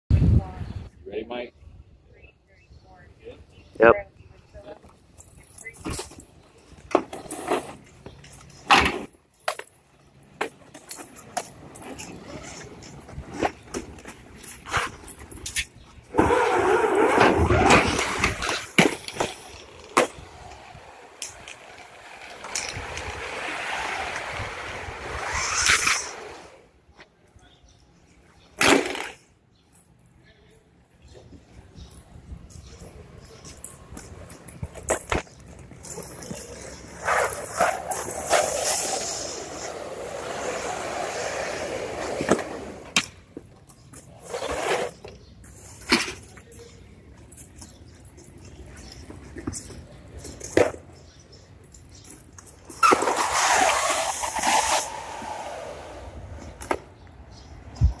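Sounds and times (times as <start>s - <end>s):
hose scraping along asphalt: 7.1s - 9.1s, 10.7s - 26.6s, 33.2s - 43.0s, 43.9s - 46.3s, 52.6s - 56.7s.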